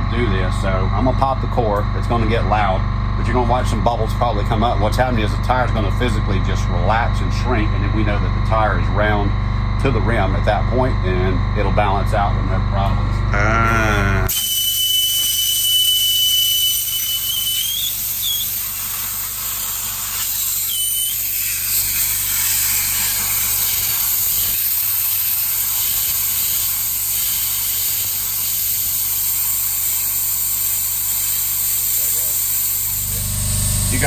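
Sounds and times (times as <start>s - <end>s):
thin whistle: 14.3s - 18.8s, 20.4s - 21.5s
air hissing out of tire valve: 14.3s - 34.0s.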